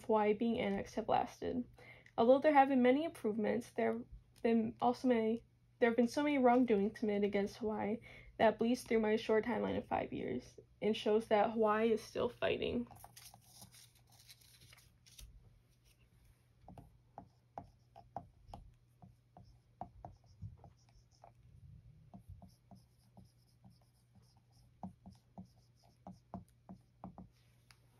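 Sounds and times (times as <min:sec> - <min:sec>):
marker squeaking on whiteboard: 0:17.2 - 0:21.4, 0:22.1 - 0:27.4.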